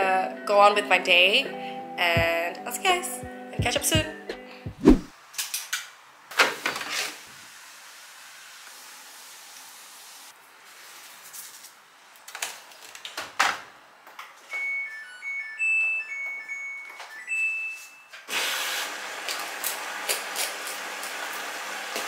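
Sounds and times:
powder pouring hiss: 0:07.3 - 0:11.2.

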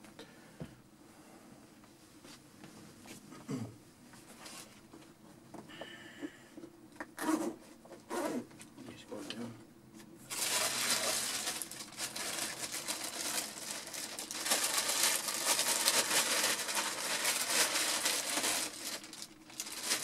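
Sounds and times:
plastic bag rustling: 0:10.3 - 0:20.0.

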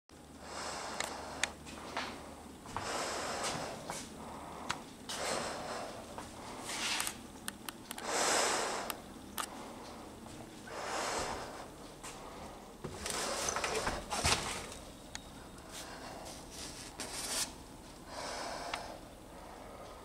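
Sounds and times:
breathing through respirator: 0:00.4 - 0:07.0, 0:08.0 - 0:14.1, 0:15.6 - 0:16.8, 0:18.1 - 0:20.0.

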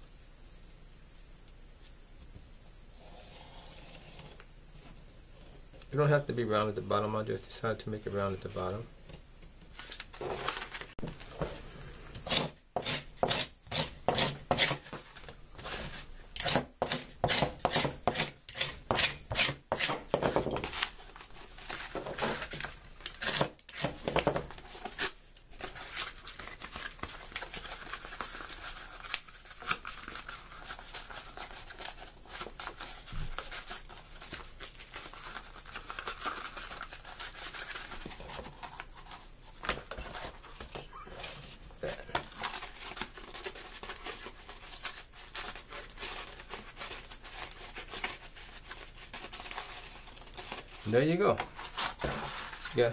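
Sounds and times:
scissors cutting cardboard: 0:12.2 - 0:15.0, 0:16.4 - 0:20.9, 0:21.7 - 0:25.1.

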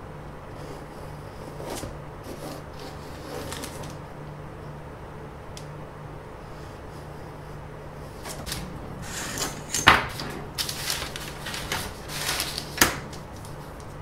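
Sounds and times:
paper rustling: 0:01.5 - 0:04.1, 0:08.2 - 0:14.0.

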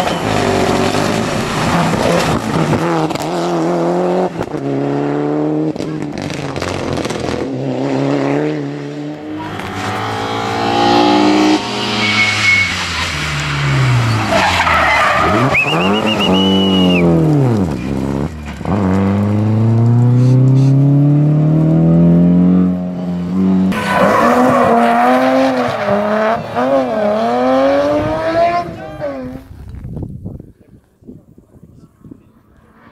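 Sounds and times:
rally car engines revving hard: 0:00.0 - 0:29.5
tyre squeals: 0:11.5 - 0:13.2, 0:14.0 - 0:17.1.

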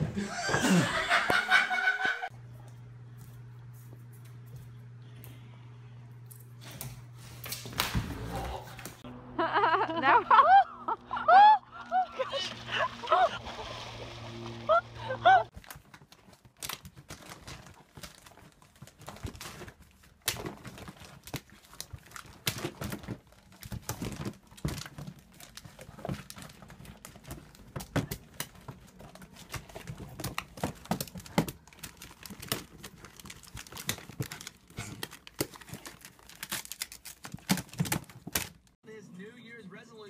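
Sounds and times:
paper and plastic rustling: 0:12.2 - 0:38.8.

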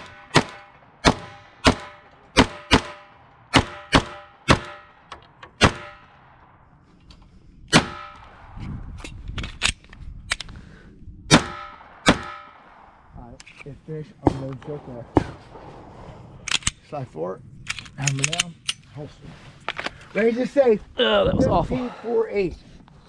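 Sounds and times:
pistol shots: 0:00.0 - 0:06.4, 0:07.7 - 0:08.5, 0:11.3 - 0:12.9.

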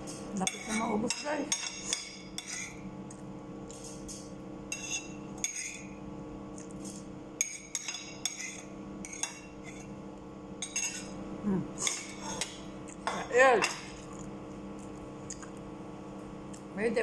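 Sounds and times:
cutlery scraping ceramic plate: 0:00.4 - 0:02.8, 0:04.7 - 0:05.9, 0:07.4 - 0:09.9, 0:10.6 - 0:11.1, 0:11.8 - 0:13.8.

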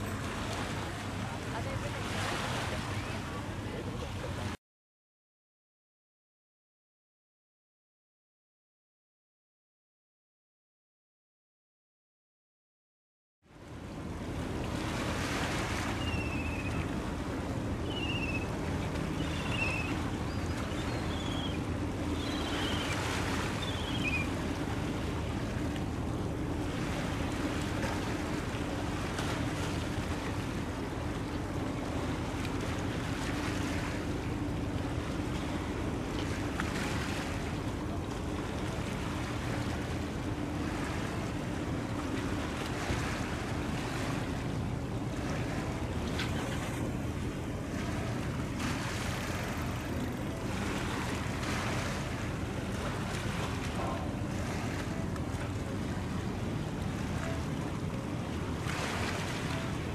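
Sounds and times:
ship engine drone: 0:00.0 - 0:04.5, 0:13.6 - 0:59.9
water noise: 0:00.0 - 0:04.6, 0:13.5 - 0:59.9
wind: 0:00.0 - 0:04.6, 0:13.4 - 0:59.9.

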